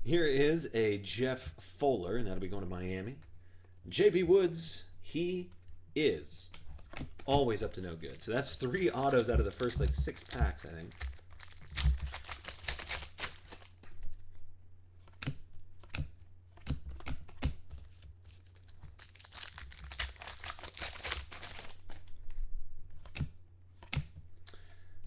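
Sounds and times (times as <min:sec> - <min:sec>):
cards tapping and clicking: 0:06.7 - 0:14.0, 0:15.0 - 0:22.1, 0:23.0 - 0:24.8
foil wrapper tearing and crinkling: 0:08.1 - 0:14.2, 0:18.3 - 0:22.1.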